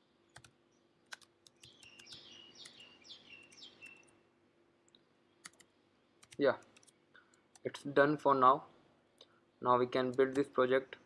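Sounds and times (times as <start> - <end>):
bird chirping: 0.0 - 4.3
computer keyboard clicks: 1.1 - 2.8, 5.4 - 7.7.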